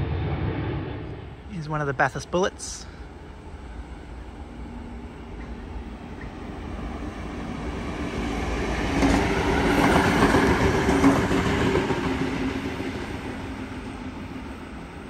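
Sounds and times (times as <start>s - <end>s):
diesel railcar engine hum: 0.0s - 15.0s
train wheels on rails: 3.6s - 15.0s.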